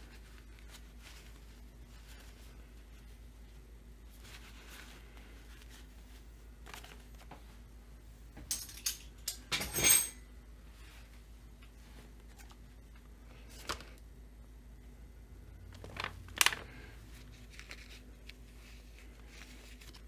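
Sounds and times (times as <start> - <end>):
metal tools clinking: 8.5 - 10.2.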